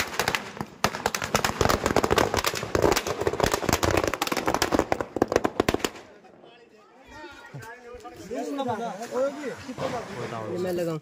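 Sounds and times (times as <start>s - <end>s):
firecrackers cracking: 0.0s - 6.4s.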